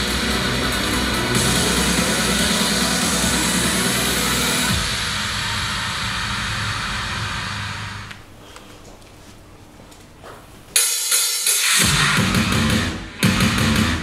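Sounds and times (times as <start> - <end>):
pop song over pa: 0.0 - 7.5.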